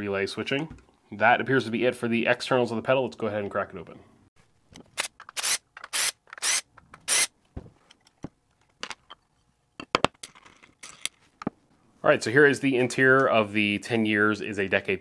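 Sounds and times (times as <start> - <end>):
screws being unscrewed: 4.8 - 7.3.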